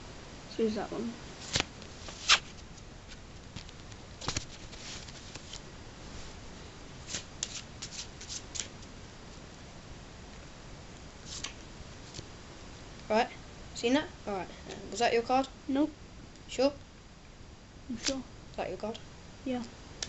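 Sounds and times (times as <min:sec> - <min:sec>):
playing cards being shuffled: 0:01.4 - 0:05.6, 0:07.0 - 0:08.7, 0:11.2 - 0:12.3.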